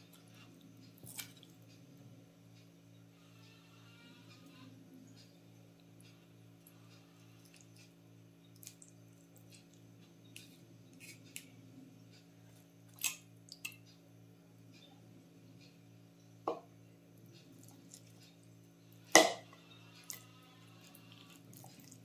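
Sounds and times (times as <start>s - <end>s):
faint low hum: 0.0s - 22.0s
utensils tapping on pot and plate: 19.2s - 19.5s.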